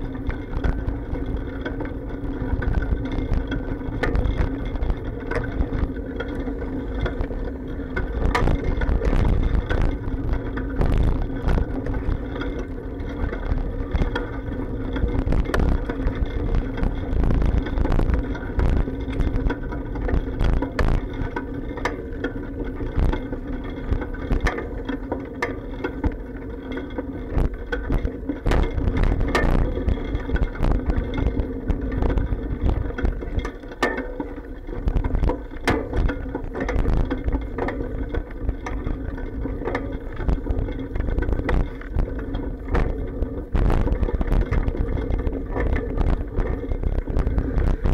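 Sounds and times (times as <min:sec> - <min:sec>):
bicycle rumbling over road: 0:00.0 - 0:47.9
bike frame clacks and bumps: 0:00.0 - 0:47.9.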